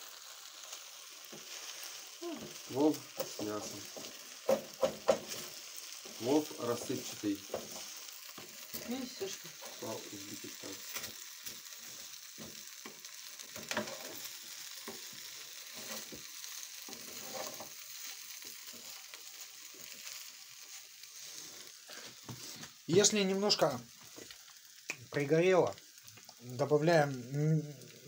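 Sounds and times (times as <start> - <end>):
dumplings sizzling in a frying pan: 0.0 - 28.0
spatula scraping and knocking pan: 2.4 - 6.2, 7.0 - 8.9, 10.6 - 17.8.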